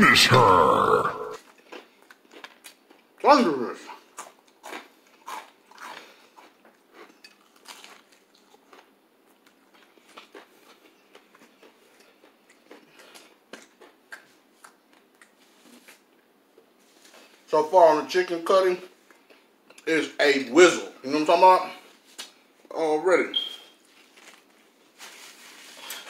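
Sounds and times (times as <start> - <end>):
crunchy food chewing: 1.4 - 3.2, 3.8 - 16.1.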